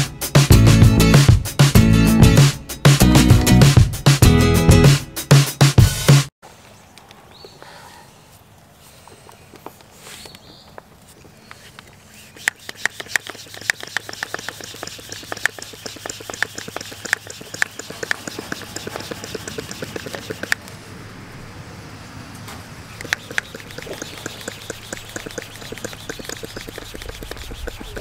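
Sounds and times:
socket ratchet clicking: 12.4s - 20.6s.

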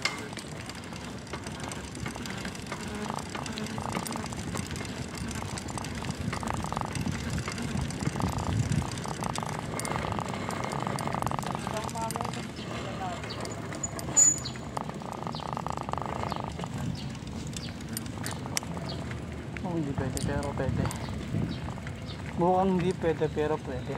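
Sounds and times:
rapid bicycle ticking: 0.0s - 23.9s
tyre noise on asphalt: 0.0s - 23.9s
wind rushing over microphone: 6.1s - 10.3s, 20.0s - 21.9s.

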